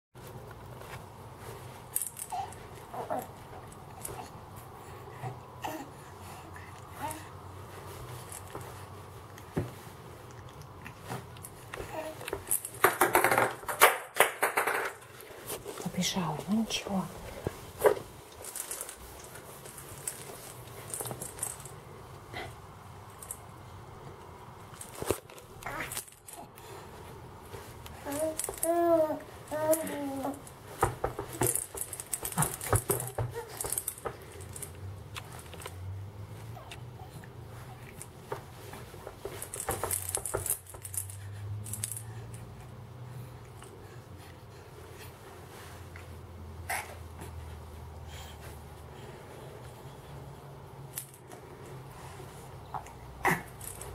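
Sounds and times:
infant cooing: 0:02.3 - 0:03.4, 0:28.0 - 0:30.4
plastic rattle shaking: 0:18.3 - 0:21.8, 0:28.0 - 0:35.7, 0:38.7 - 0:42.2.

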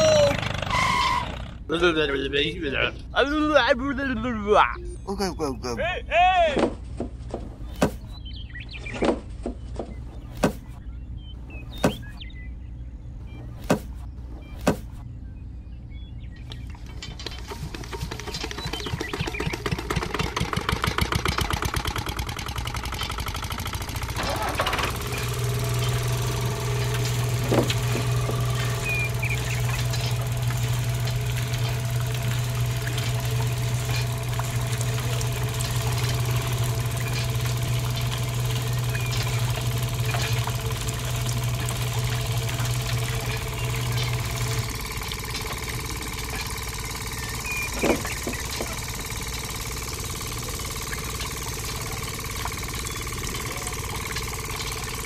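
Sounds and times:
small electric motor humming: 0:23.9 - 0:55.0
stalks snapping in rollers: 0:24.1 - 0:46.7.

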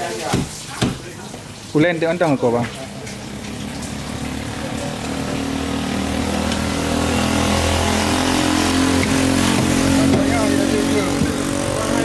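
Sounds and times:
vehicle engine running: 0:03.6 - 0:12.0.

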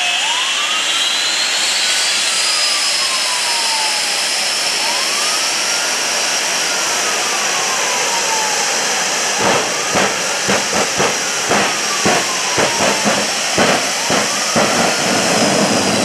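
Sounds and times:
jet engines whining: 0:00.0 - 0:16.0
afterburner pops: 0:09.4 - 0:16.0.

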